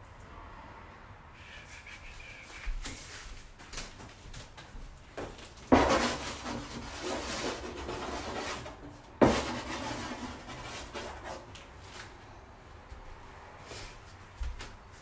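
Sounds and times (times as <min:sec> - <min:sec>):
charcoal block knocking board: 0:05.7 - 0:11.3
charcoal scratching on board: 0:05.7 - 0:11.5.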